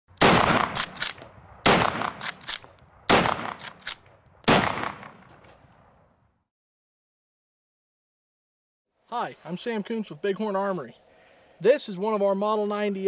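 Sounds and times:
rifle shots: 0.2 - 5.3
metallic clacks of rifle lever: 0.8 - 1.3, 2.2 - 2.8, 3.6 - 4.2.

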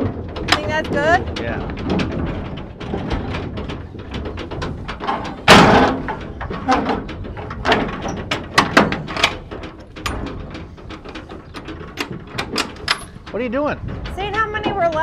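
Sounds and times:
knocks and light clatter: 0.0 - 15.0
loud bang on metal trailer: 5.1 - 6.2.

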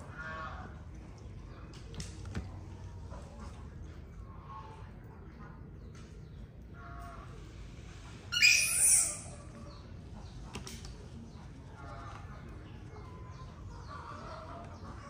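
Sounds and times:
baby monkey squealing: 8.3 - 9.4.

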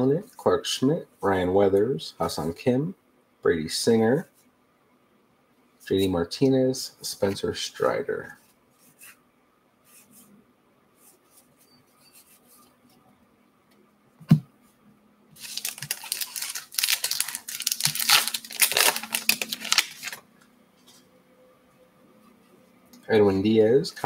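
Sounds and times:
wrapper tearing and crinkling: 15.4 - 20.2.

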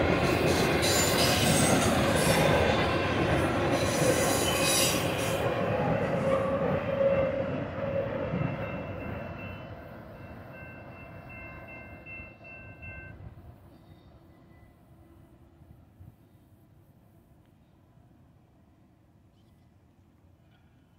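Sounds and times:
train rolling on rails: 0.0 - 16.3.

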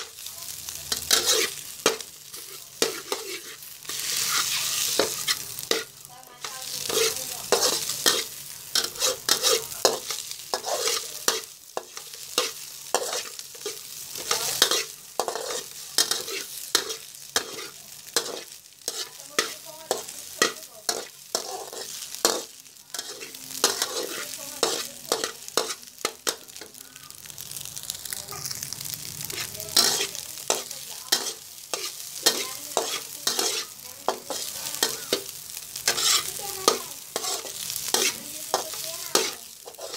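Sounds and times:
frying sizzle: 0.0 - 39.9
metal spatula scraping a wok: 0.9 - 26.7, 28.8 - 39.9.

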